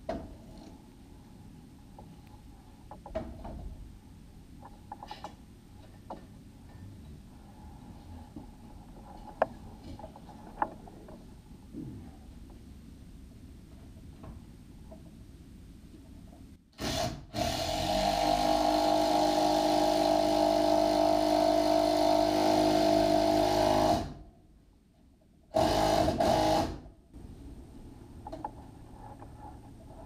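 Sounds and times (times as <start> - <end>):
power drill drilling into wood: 16.8 - 24.2, 25.6 - 26.8.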